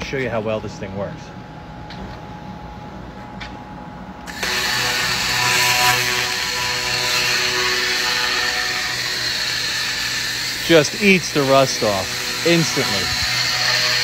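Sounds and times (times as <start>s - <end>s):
low hum: 4.1s - 14.0s
laser hissing buzz with whine: 4.3s - 14.0s.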